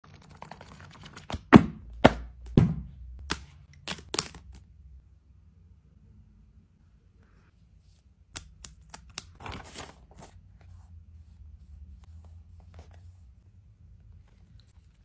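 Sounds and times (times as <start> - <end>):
heavy knocks: 1.5 - 3.0
book pages riffling: 8.9 - 10.4.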